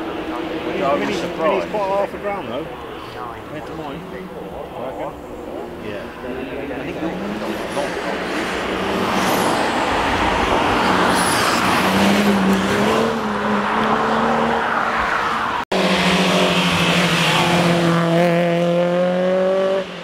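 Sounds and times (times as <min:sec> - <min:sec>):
car engine accelerating: 0:04.6 - 0:20.0
car engine revving high: 0:06.8 - 0:20.0.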